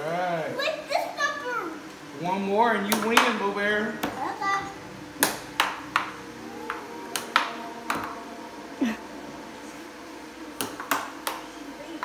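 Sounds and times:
air blower hum: 0:01.8 - 0:12.0
air hockey puck clacking: 0:02.9 - 0:03.4, 0:05.2 - 0:08.2.

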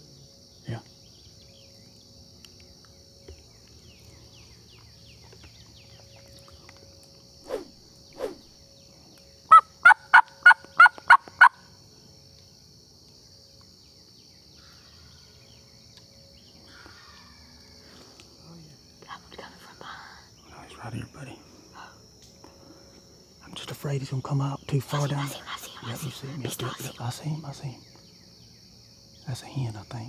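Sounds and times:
turkey call yelps: 0:09.5 - 0:11.6.

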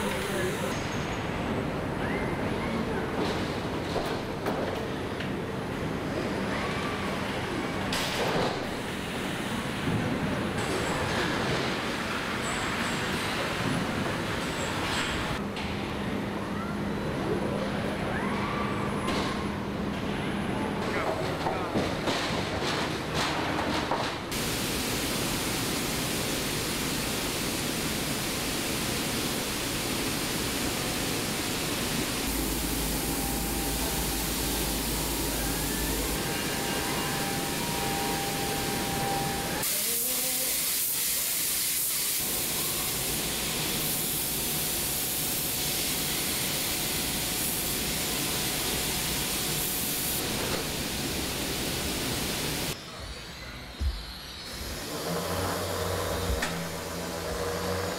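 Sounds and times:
hissing factory machinery: 0:00.0 - 0:57.9
paint atomizers spraying: 0:24.3 - 0:50.2
faint steady whine: 0:30.6 - 0:39.6.

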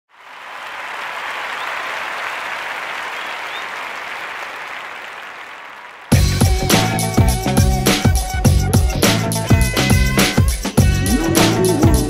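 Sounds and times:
crowd applauding: 0:00.1 - 0:07.1.

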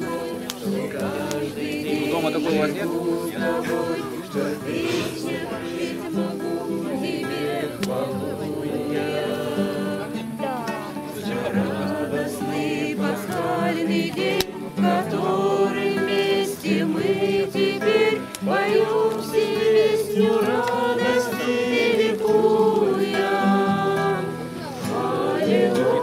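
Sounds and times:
acoustic guitar strummed: 0:00.0 - 0:26.0
group singing a hymn: 0:00.0 - 0:26.0.

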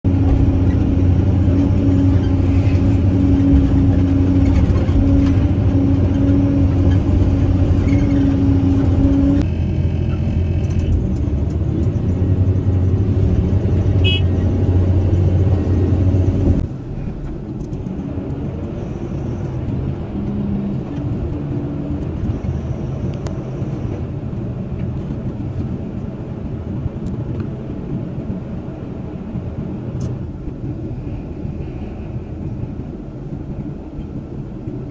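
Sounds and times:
excavator engine and hydraulics: 0:00.0 - 0:34.9.

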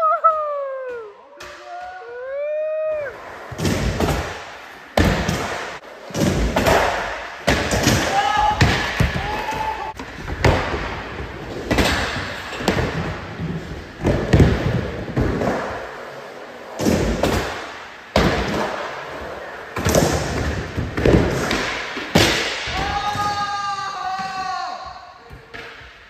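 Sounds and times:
skateboards clacking and slapping: 0:03.4 - 0:23.5.

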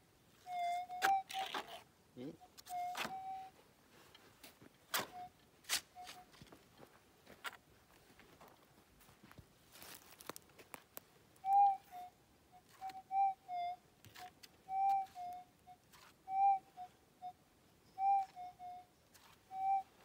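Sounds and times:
metal detector whistle tones: 0:00.4 - 0:01.8, 0:02.4 - 0:03.6, 0:05.0 - 0:06.3, 0:11.4 - 0:20.0.

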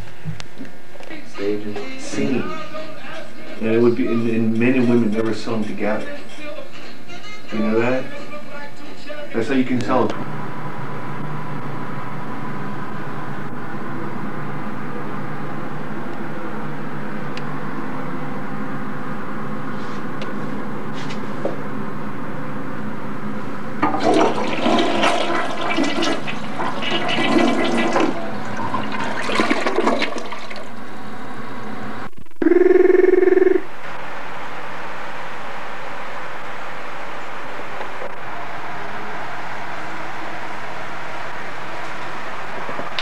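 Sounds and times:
steady low hum: 0:00.0 - 0:23.9, 0:30.6 - 0:43.0
toilet flushing: 0:23.8 - 0:30.9
loud buzzing tone: 0:30.8 - 0:37.0.

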